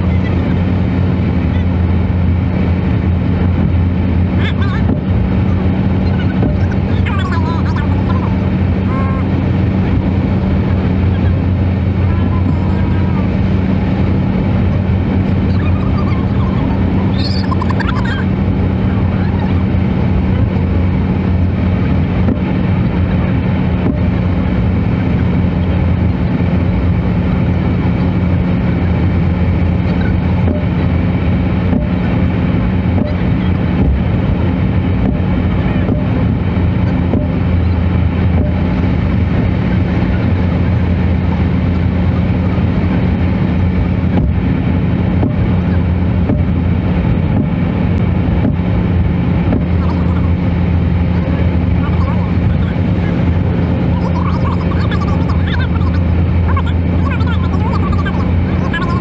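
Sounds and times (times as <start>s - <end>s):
car engine and tyre drone: 0.0s - 59.0s.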